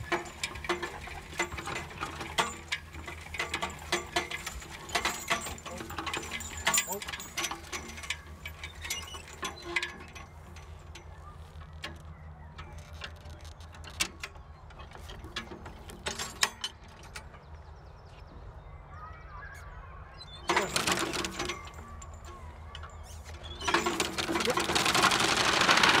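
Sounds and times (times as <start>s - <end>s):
mower gears clicking and clattering: 0.0s - 18.3s, 20.3s - 26.0s.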